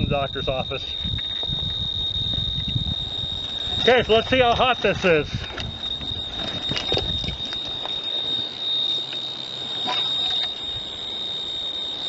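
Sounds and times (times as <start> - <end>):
wind noise: 0.0 - 8.4
radiation meter buzzing clicks: 0.0 - 12.0
handling noise: 1.0 - 9.2, 9.8 - 10.7.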